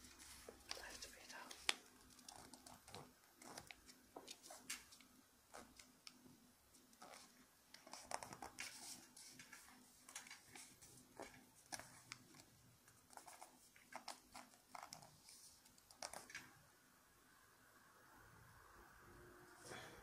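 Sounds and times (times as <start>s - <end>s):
paper crinkling and rustling: 7.0s - 12.5s.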